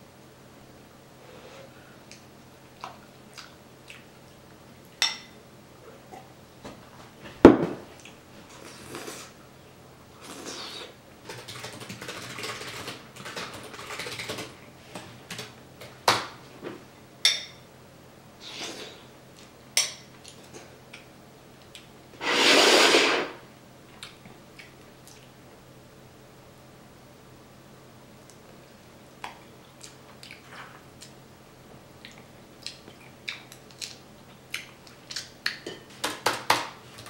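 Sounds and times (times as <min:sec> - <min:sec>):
eating sounds: 0:02.1 - 0:04.4, 0:29.2 - 0:31.2, 0:32.0 - 0:35.7
spoon clinking on dishes: 0:17.2 - 0:17.6.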